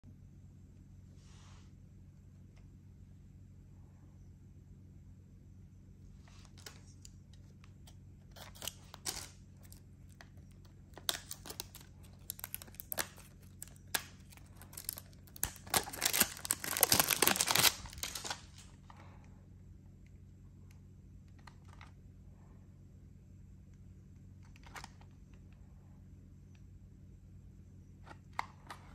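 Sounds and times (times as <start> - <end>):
cellophane crinkling: 6.3 - 18.9.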